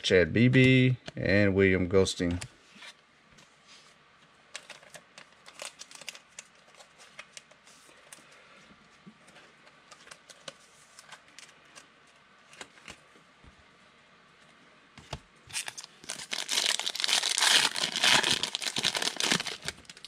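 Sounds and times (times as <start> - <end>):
foil wrapper crinkling: 4.6 - 7.0, 15.5 - 20.0.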